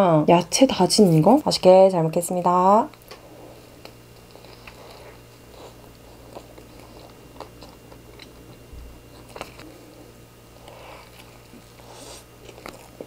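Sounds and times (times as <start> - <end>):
low steady hum: 0.0 - 13.0
person chewing: 3.6 - 13.0.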